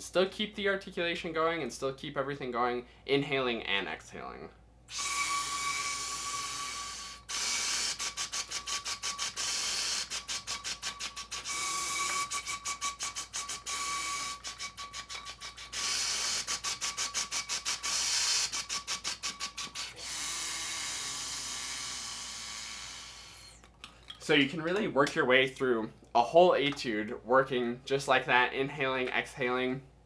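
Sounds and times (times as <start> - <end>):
breath rushing through a tube: 4.9 - 23.6
faint steady whistle: 4.9 - 23.6.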